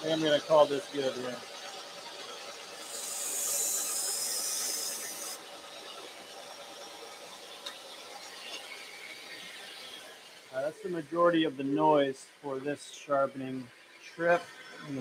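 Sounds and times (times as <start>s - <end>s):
belt grinder running: 1.1s - 8.2s
knife grinding on belt grinder: 2.8s - 5.4s.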